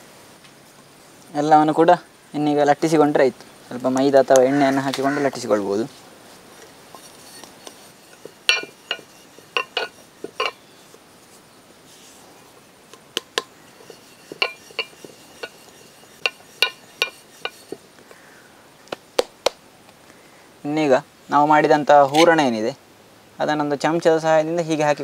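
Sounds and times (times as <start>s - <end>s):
hard objects clinking on work surface: 6.9s - 11.0s, 12.9s - 17.9s.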